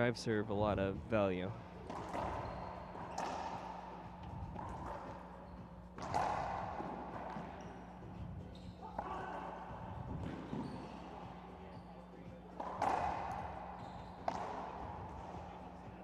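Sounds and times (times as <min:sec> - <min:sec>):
racquetball ball cracking off racquets: 0:01.8 - 0:08.0, 0:08.8 - 0:11.3, 0:12.6 - 0:15.6.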